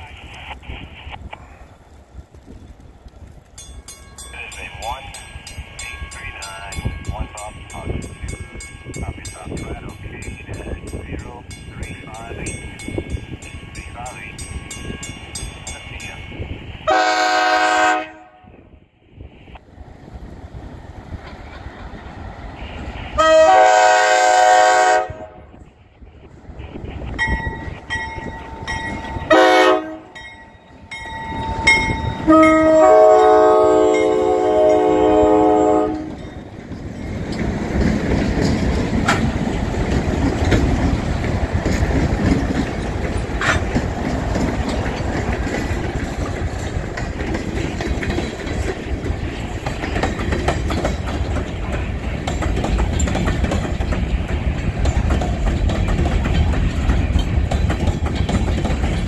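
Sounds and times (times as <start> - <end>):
locomotive rumbling past: 0.0 - 59.0
locomotive air horn blasts: 16.8 - 18.6, 22.6 - 25.5, 29.2 - 30.2, 31.6 - 36.2
train wheels clicking on rail joints: 20.4 - 23.2, 35.8 - 59.0.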